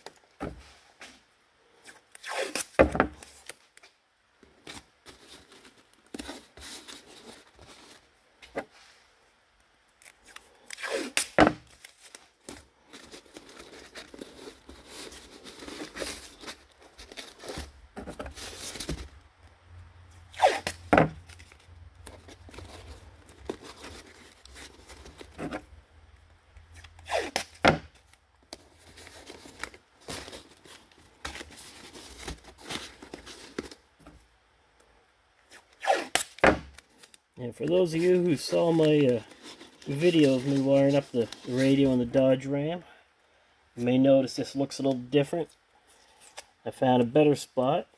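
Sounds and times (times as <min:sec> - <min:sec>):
tape rustling on cardboard: 0:00.0 - 0:09.0, 0:09.6 - 0:19.5, 0:20.1 - 0:34.3, 0:35.4 - 0:42.0
tape ripping off roll: 0:02.0 - 0:03.6, 0:10.0 - 0:12.6, 0:20.3 - 0:21.6, 0:26.7 - 0:28.2, 0:35.5 - 0:37.1.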